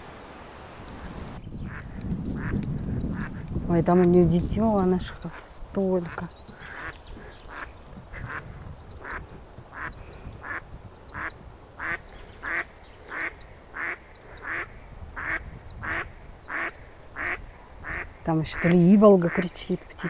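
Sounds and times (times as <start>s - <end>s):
duck quacking: 11.2s - 19.5s.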